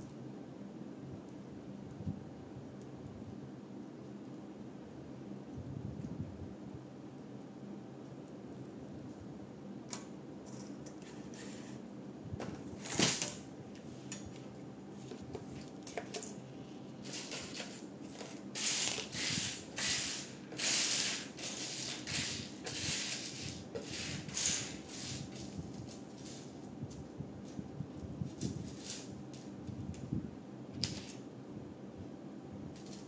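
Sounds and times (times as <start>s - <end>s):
plastic pieces clicking and clattering: 17.0s - 27.6s, 32.8s - 33.0s.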